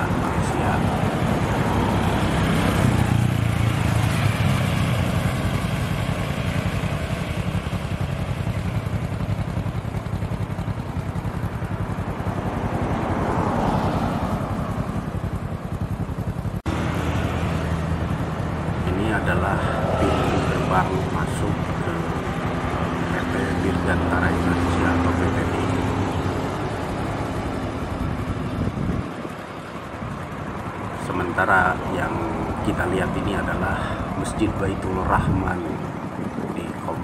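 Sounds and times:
engine hum and tyre noise: 0.0 - 37.0
vehicles passing: 0.0 - 37.0.

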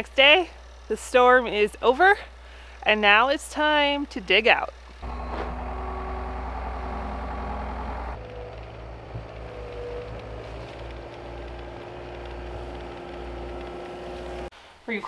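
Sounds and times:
diesel engine running: 5.0 - 14.5.

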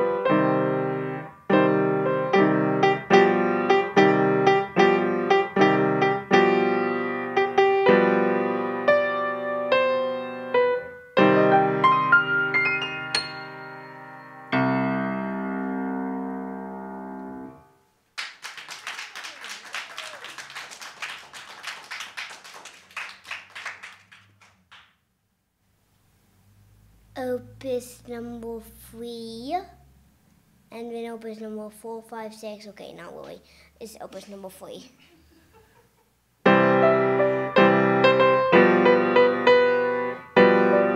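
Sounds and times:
grand piano playing: 0.0 - 17.7, 36.4 - 40.9
audience applauding: 18.2 - 25.0.

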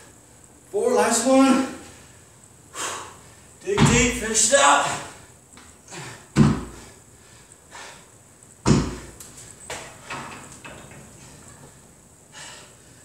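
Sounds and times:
dumbbells thudding on floor: 3.7 - 4.2, 6.3 - 6.9, 8.6 - 10.4.

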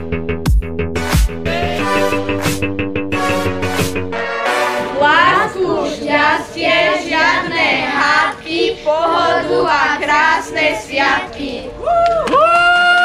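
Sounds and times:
young children singing: 4.9 - 11.8.

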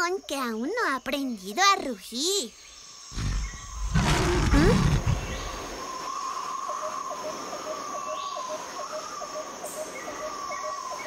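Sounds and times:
birds: 0.0 - 11.0
insects trilling: 0.0 - 11.0
lion roaring: 3.1 - 5.5.

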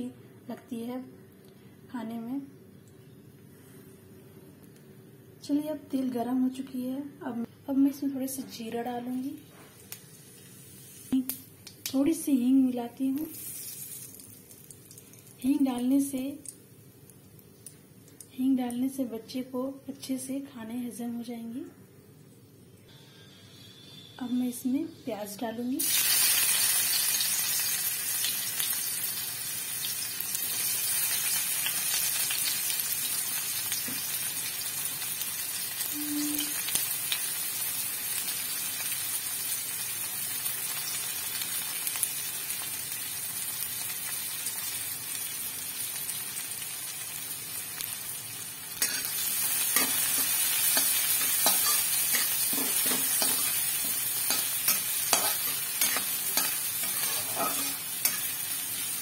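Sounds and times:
onion sizzling in hot oil: 8.0 - 19.1, 25.0 - 59.0
metal spatula scraping pan: 48.8 - 49.2, 49.8 - 58.4.

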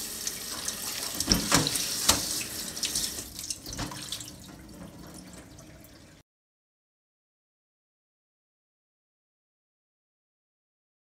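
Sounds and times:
water splashing in a sink: 0.0 - 6.2.

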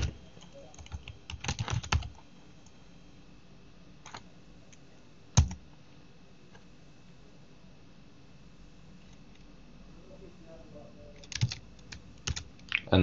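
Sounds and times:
keyboard keystrokes: 0.0 - 2.2, 11.2 - 12.5.

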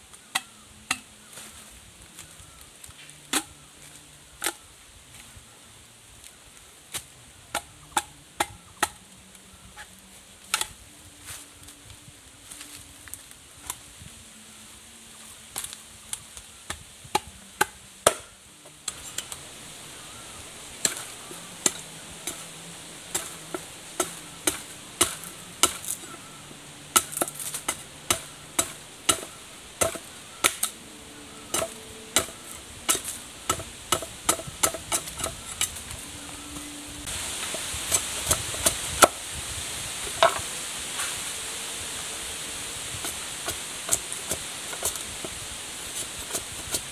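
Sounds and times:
steady hiss: 0.0 - 46.9
machete chopping bamboo: 3.3 - 3.5, 16.7 - 20.2, 20.8 - 30.8, 31.5 - 35.8.

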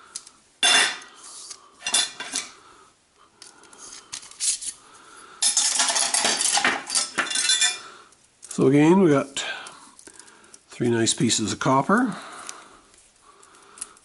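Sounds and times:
metal tools clinking and clattering: 0.6 - 1.1, 1.8 - 2.5, 5.4 - 7.9.

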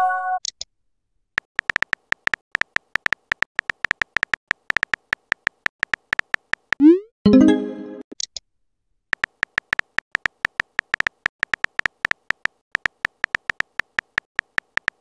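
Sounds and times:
keyboard typing clicks: 1.5 - 7.0, 9.2 - 15.0.

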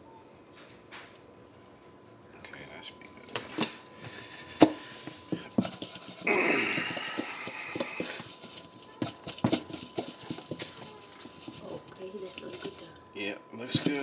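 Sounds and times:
chicken pieces rattling in shaken bowl: 5.6 - 12.9.

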